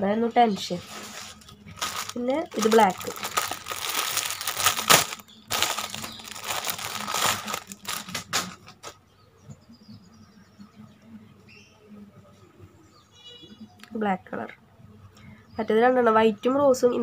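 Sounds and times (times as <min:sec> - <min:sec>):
plastic bag crinkling: 0:00.6 - 0:08.9.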